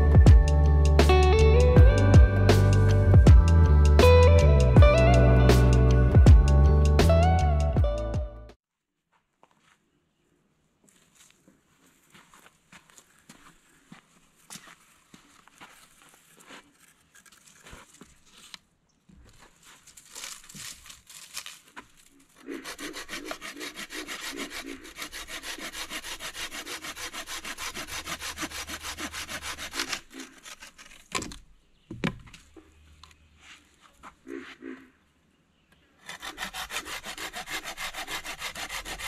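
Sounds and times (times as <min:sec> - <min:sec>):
rustling and handling of branch: 0:10.8 - 0:34.5
hand saw cutting branch: 0:16.0 - 0:18.6, 0:19.9 - 0:31.4, 0:36.0 - 0:39.0
sharp wood crack: 0:19.9 - 0:23.4, 0:27.4 - 0:32.6.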